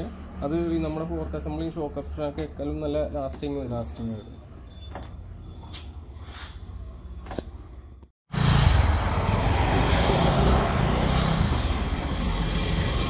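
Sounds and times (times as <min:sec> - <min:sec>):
motor vehicle noise: 0:00.0 - 0:13.0.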